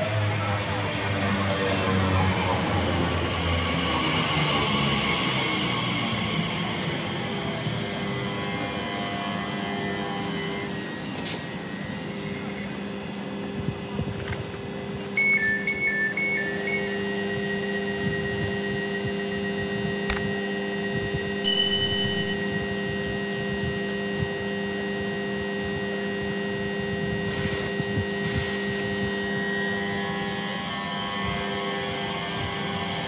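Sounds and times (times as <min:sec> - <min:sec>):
rising traction whine: 0:00.0 - 0:33.0
train electrical hum: 0:00.0 - 0:33.0
two-tone door alarm beeping: 0:15.1 - 0:18.7, 0:21.4 - 0:22.8.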